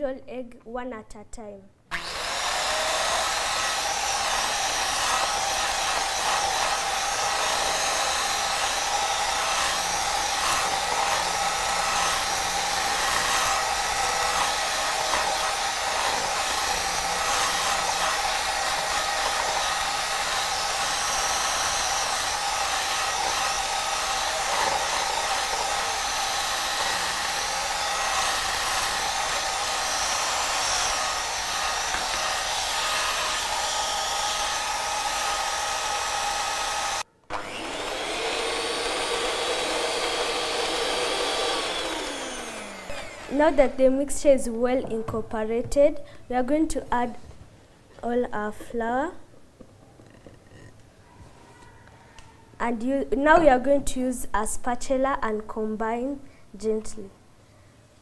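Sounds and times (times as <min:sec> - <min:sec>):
electric hand mixer running: 0:01.9 - 0:44.2.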